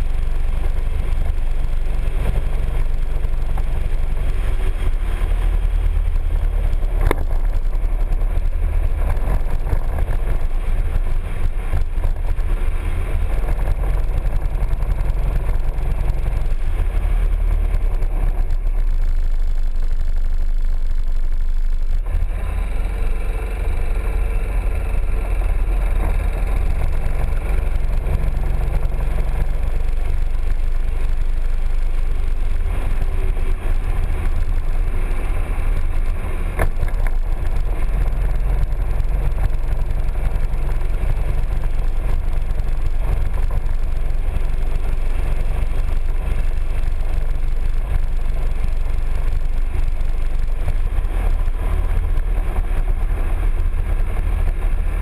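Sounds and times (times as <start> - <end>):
scooter engine rumbling: 0.0 - 55.0.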